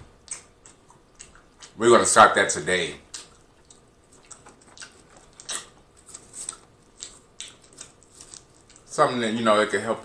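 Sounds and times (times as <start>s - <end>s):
person chewing food: 0.0s - 1.8s, 3.1s - 8.9s.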